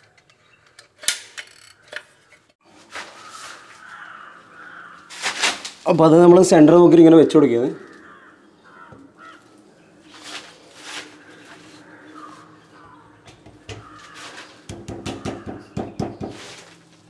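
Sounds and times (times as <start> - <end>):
faint bird calls: 3.1 - 5.1, 7.7 - 16.4.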